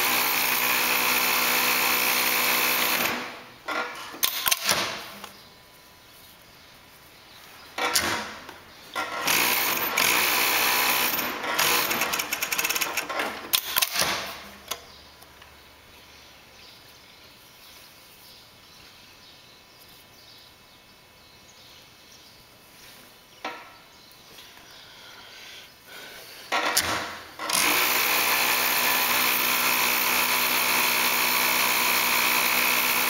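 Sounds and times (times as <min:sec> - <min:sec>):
sewing machine clattering: 0:09.0 - 0:14.0.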